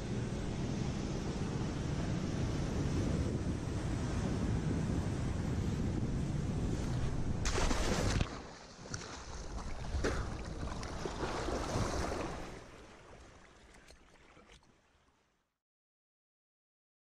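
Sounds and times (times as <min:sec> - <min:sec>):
water splashing and sloshing: 0:06.7 - 0:15.4.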